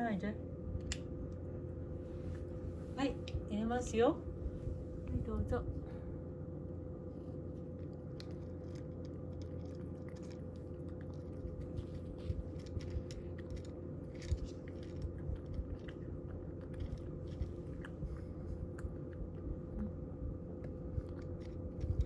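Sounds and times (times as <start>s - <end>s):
fan heater hum: 0.0s - 22.0s
cat crunching dry kibble: 7.0s - 22.0s.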